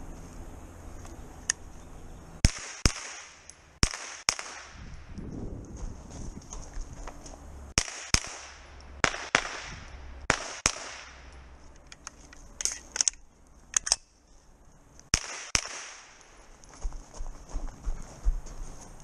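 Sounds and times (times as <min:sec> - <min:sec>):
carbine gunshots: 0:02.4 - 0:04.8, 0:07.8 - 0:11.3, 0:15.1 - 0:16.2.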